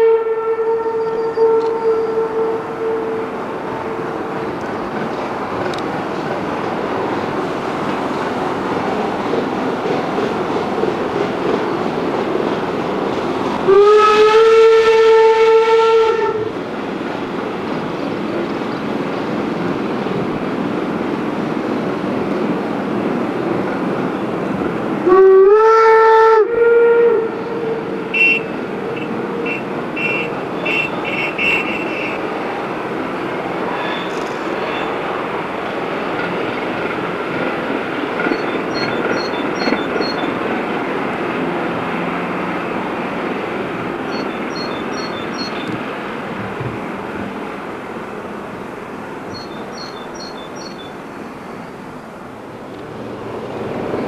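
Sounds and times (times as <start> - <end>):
steam locomotive whistle: 0.0 - 4.1, 13.6 - 16.5, 25.0 - 32.2
train rumbling: 0.0 - 54.0.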